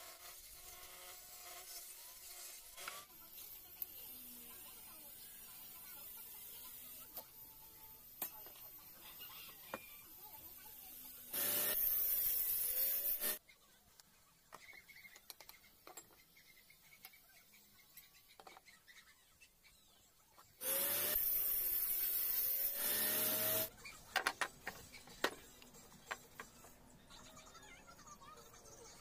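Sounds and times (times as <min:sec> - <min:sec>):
jigsaw cutting wood: 0:11.3 - 0:13.4, 0:20.6 - 0:23.7.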